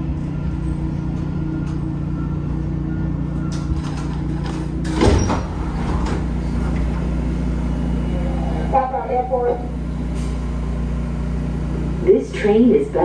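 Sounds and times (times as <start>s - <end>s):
low hum of stopped train: 0.0s - 13.0s
train doors sliding open: 3.4s - 7.2s.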